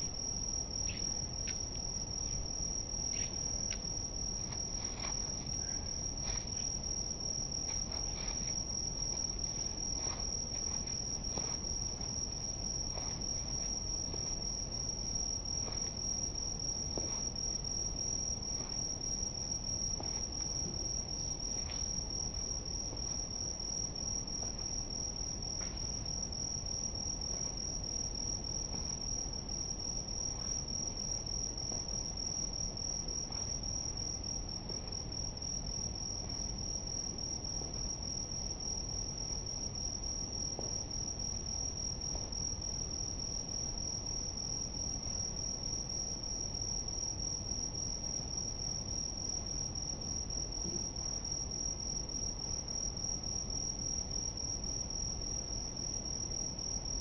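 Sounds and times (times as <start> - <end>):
night insects trilling: 0.0 - 57.0.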